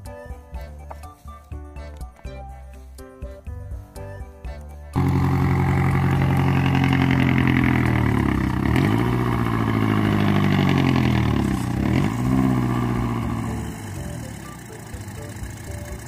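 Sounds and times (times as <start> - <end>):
truck engine driving slowly: 4.9 - 16.0.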